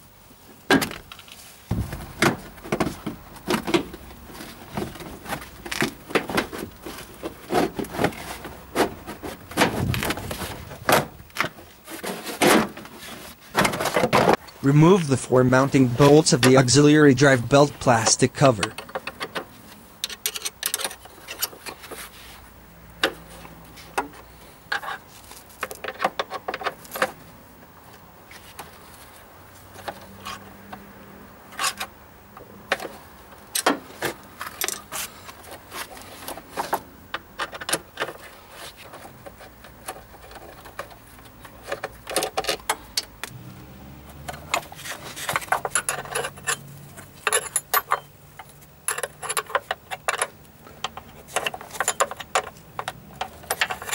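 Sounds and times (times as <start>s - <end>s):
metal tools clinking on bolts: 44.3s - 53.9s.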